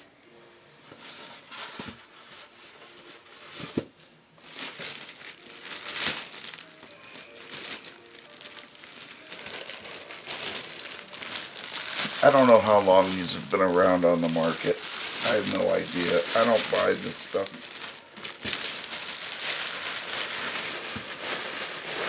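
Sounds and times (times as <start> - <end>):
plastic bag crinkling: 4.4 - 22.0.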